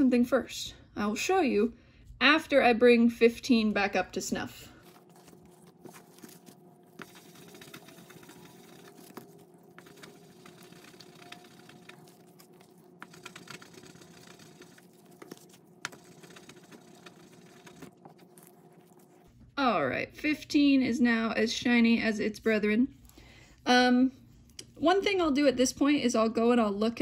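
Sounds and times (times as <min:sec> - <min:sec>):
die rubbing on polishing paper: 0:05.9 - 0:19.3.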